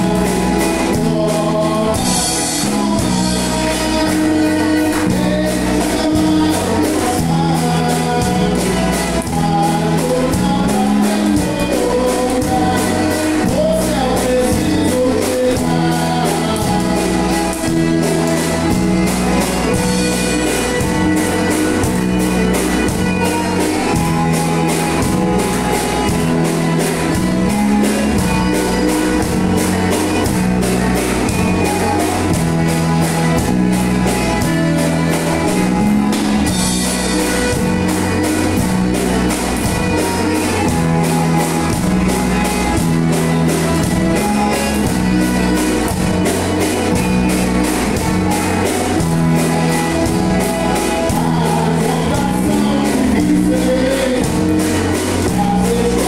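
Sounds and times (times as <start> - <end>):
drum kit: 0.0 - 56.0
electric bass: 0.0 - 56.0
electric guitar: 0.0 - 56.0
piano accordion: 0.0 - 56.0.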